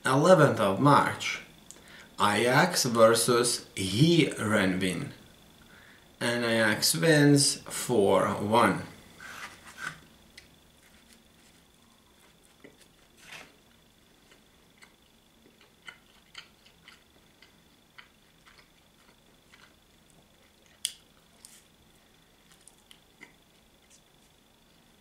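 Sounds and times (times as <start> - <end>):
faint high-pitched whine: 0.0 - 25.0
chewing and biting food: 14.2 - 21.6, 22.4 - 24.0.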